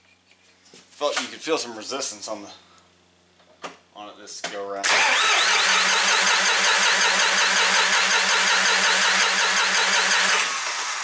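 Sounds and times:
starter cranking diesel engine: 0:04.8 - 0:11.0.

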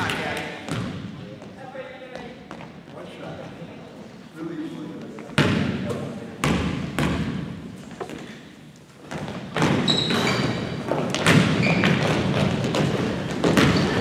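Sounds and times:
crowd and player noise: 0:00.0 - 0:14.0
shoe squeaks: 0:09.8 - 0:10.9, 0:11.5 - 0:12.2, 0:13.6 - 0:14.0
basketball thudding on floor: 0:10.9 - 0:14.0.

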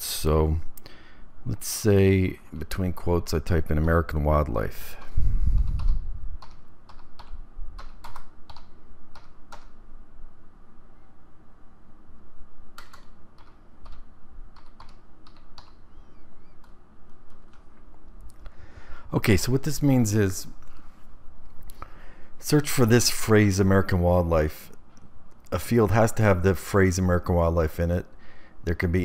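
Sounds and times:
computer keyboard typing: 0:05.7 - 0:09.7, 0:12.8 - 0:15.8, 0:16.6 - 0:17.7.

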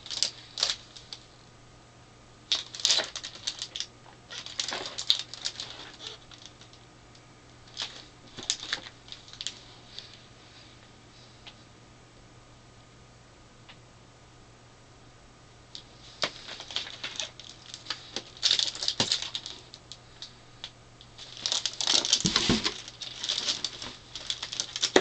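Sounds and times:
cardboard and plastic wrap crinkling: 0:00.0 - 0:01.2, 0:02.5 - 0:06.8, 0:07.6 - 0:10.2, 0:16.0 - 0:20.3, 0:21.2 - 0:25.0.

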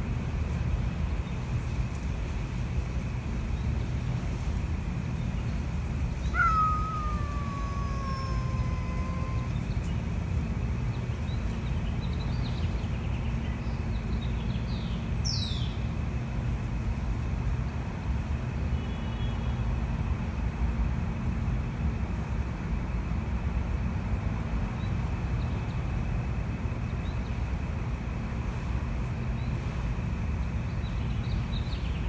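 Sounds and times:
cat yowling angrily: 0:06.3 - 0:09.6.

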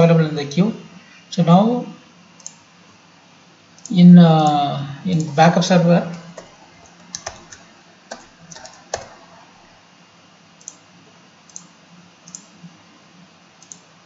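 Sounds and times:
keyboard keystrokes: 0:07.1 - 0:09.2.

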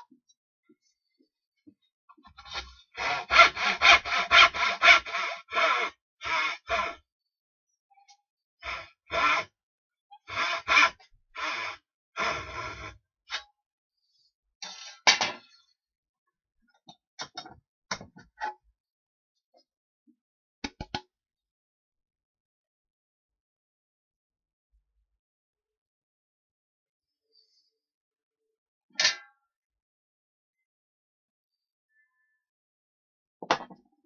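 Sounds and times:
hand tool rubbing on wood: 0:02.4 - 0:07.0.

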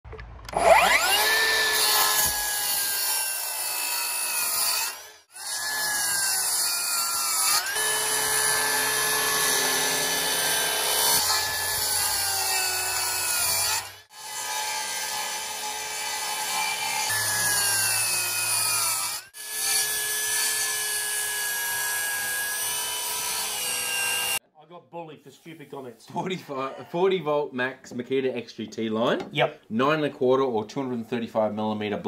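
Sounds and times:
circular saw cutting wood: 0:00.5 - 0:24.4.

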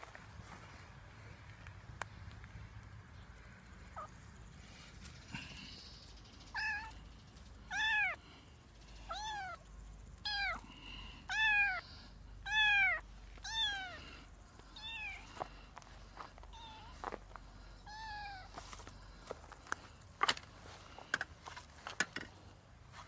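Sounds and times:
kitten meowing: 0:06.6 - 0:07.0, 0:07.7 - 0:08.2, 0:09.1 - 0:09.6, 0:10.2 - 0:10.6, 0:11.3 - 0:11.8, 0:12.4 - 0:14.0, 0:14.8 - 0:15.3, 0:16.5 - 0:17.0, 0:17.8 - 0:18.5.

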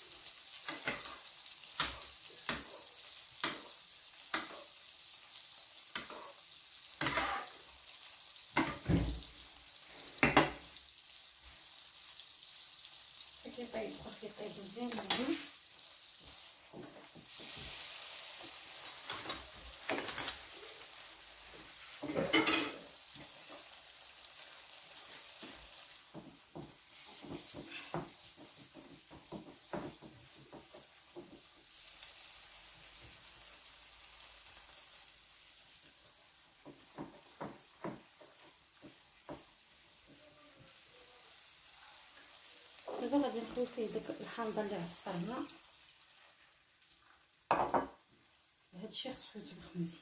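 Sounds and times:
fish sizzling in a frying pan: 0:00.0 - 0:50.0
utensil scraping a pan: 0:07.0 - 0:07.6.

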